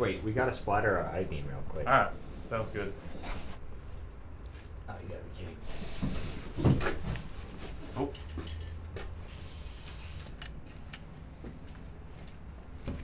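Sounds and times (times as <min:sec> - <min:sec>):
paint spraying hiss: 0:05.6 - 0:06.5, 0:09.3 - 0:10.4.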